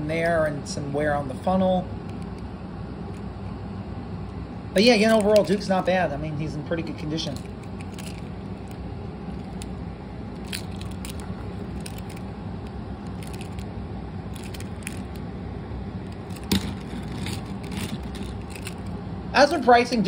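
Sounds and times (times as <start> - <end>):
steady low hum: 0.0 - 20.0
toy clicks and rubbing in hands: 10.4 - 12.2, 13.1 - 13.6, 14.4 - 15.2, 16.1 - 18.9.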